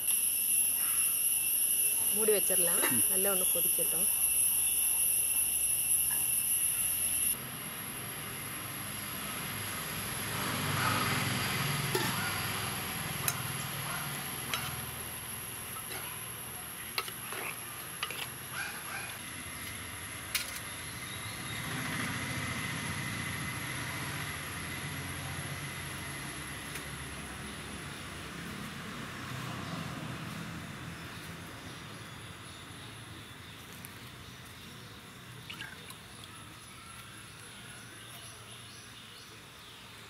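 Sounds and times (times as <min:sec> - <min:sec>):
steady high whine: 0:00.0 - 0:10.6, 0:11.3 - 0:18.6.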